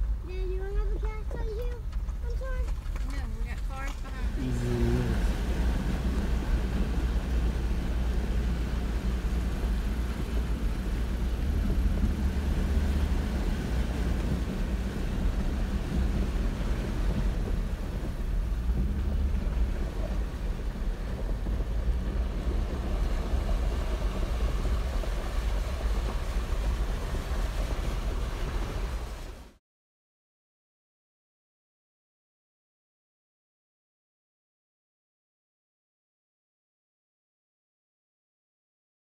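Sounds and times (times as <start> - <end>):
engine and tyres rumbling: 0.0 - 29.6.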